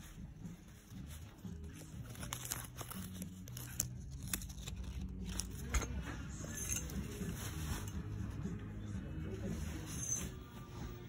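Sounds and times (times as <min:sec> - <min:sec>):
nylon fabric rustling: 0:00.0 - 0:08.6
hangers clicking and scraping: 0:01.7 - 0:08.1.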